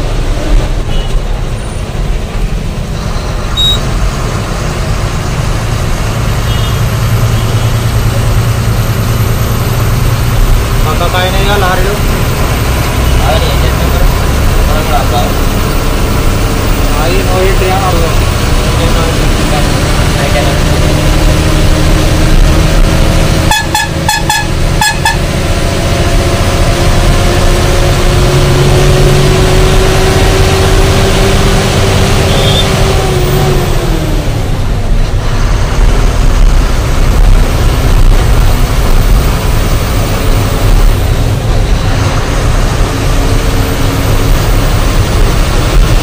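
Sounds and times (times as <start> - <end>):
truck running on road: 0.0 - 46.0
short horn beeps: 3.0 - 3.8, 6.5 - 7.6, 23.5 - 25.2, 32.3 - 32.7.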